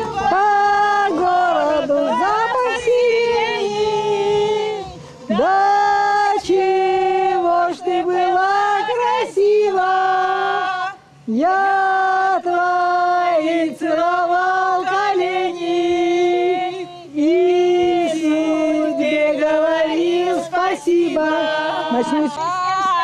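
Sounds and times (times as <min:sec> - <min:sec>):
group singing unaccompanied: 0:00.0 - 0:23.0.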